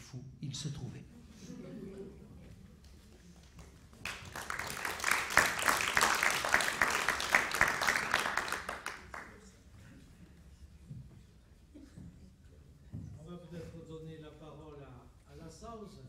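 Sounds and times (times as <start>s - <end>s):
audience applauding: 3.5s - 9.5s.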